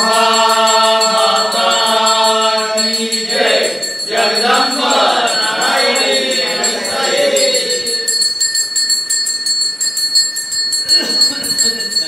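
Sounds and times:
group chanting: 0.0 - 8.2
hand bell ringing rapidly: 0.0 - 12.0.

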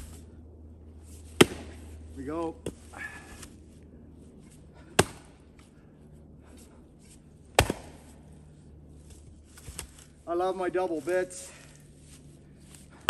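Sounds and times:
axe chopping wood: 1.3 - 1.9, 2.6 - 3.5, 4.8 - 5.4, 7.1 - 8.2, 9.5 - 10.0.

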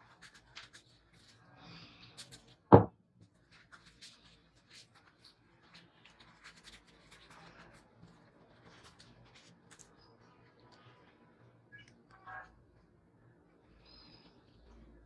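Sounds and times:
loud thump: 2.7 - 2.9
tissue paper rustling: 3.4 - 11.2.

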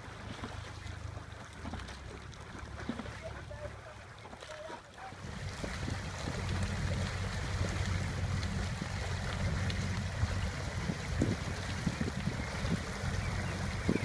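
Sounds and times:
water lapping and splashing: 0.0 - 14.0
wind rumbling on microphone: 5.1 - 14.0.

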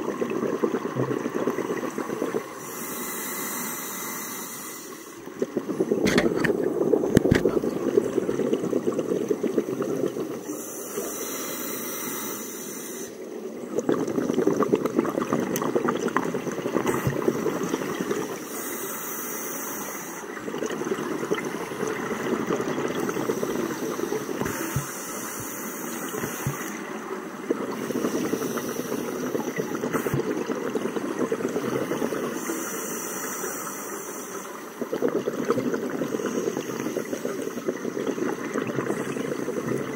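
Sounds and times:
bubbling exhaled air underwater: 0.0 - 33.8, 34.6 - 39.9
diver inhaling through regulator: 2.4 - 6.5, 10.5 - 13.2, 18.4 - 20.3, 23.0 - 26.8, 27.7 - 30.2.

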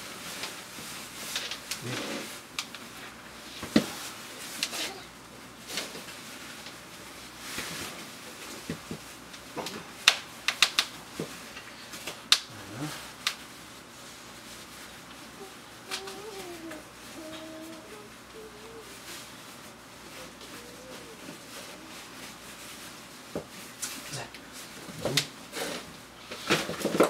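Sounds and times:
soft rustling: 13.4 - 26.7.

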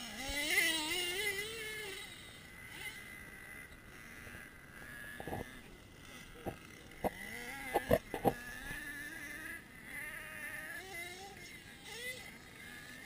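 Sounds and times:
model engine whine: 0.0 - 13.0.

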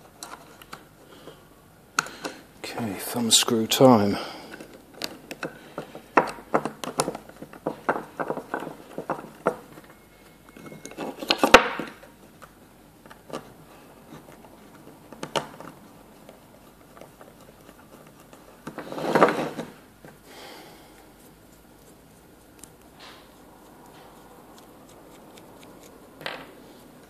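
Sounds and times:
small parts clicking and knocking: 4.5 - 19.7, 23.8 - 27.0.

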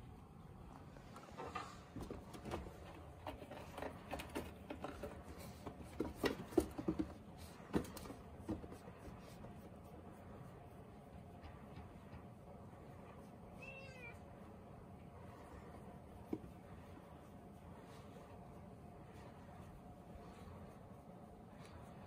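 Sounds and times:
cats moving in wire cage: 0.9 - 9.8.

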